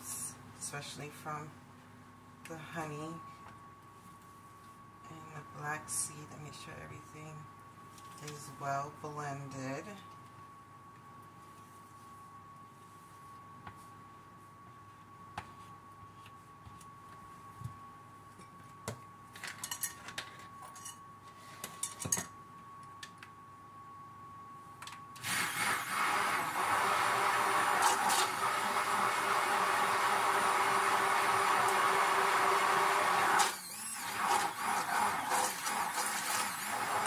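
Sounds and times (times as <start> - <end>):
stick blender running: 25.2 - 37.0.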